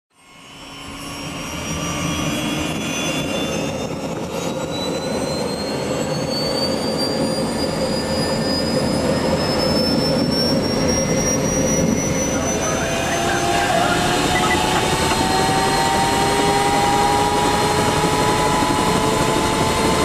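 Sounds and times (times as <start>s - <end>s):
helicopter turbine whine spooling up: 0.2s - 20.0s.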